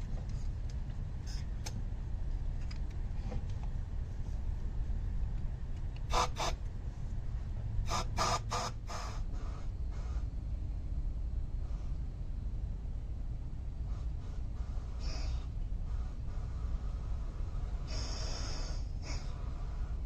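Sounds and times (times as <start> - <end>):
steady low rumble: 0.0 - 20.0
compressed air blasts: 6.0 - 6.6, 7.8 - 10.4, 13.8 - 20.0.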